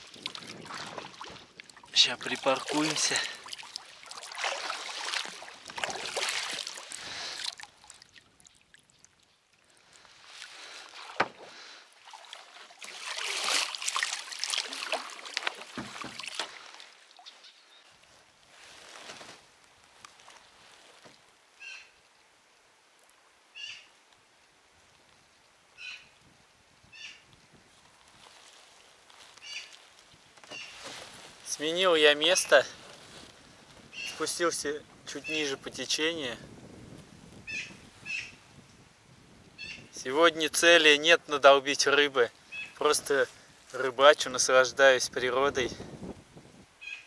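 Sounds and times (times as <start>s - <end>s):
water sloshing and swishing: 0.0s - 21.4s, 27.7s - 35.9s.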